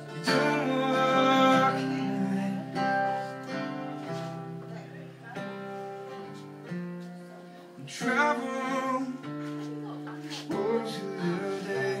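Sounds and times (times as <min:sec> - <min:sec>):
man singing: 0:00.0 - 0:04.0, 0:07.8 - 0:09.6, 0:10.2 - 0:12.0
strummed acoustic guitar: 0:00.0 - 0:12.0.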